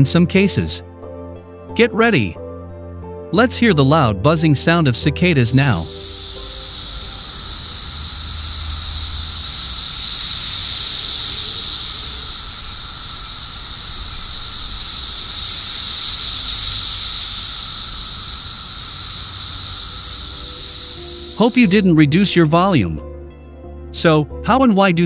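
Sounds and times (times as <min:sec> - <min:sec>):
cicadas buzzing: 0:05.4 - 0:22.1.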